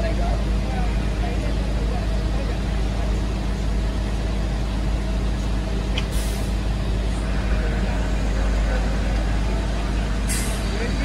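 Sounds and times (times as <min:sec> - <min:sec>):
truck engine idling: 0:00.0 - 0:11.0
air brake hiss: 0:06.1 - 0:06.6, 0:10.3 - 0:10.6.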